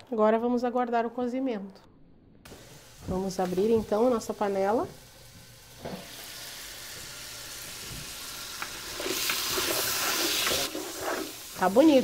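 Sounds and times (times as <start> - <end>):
meat sizzling in a pot: 2.5 - 12.0.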